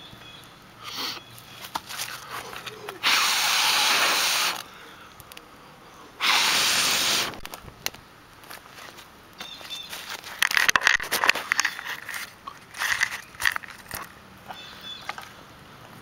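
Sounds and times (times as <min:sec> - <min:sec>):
fire crackling and snapping: 0:04.5 - 0:05.5, 0:07.2 - 0:11.2.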